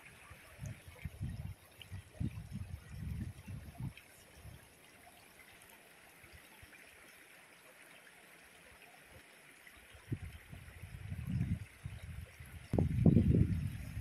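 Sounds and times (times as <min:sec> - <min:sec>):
running water of rocky stream: 0:00.0 - 0:14.0.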